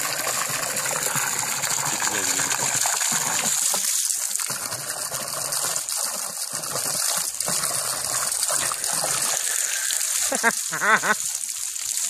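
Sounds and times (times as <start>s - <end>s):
water splashing: 0.0s - 12.0s
hose nozzle spraying water: 1.0s - 12.0s.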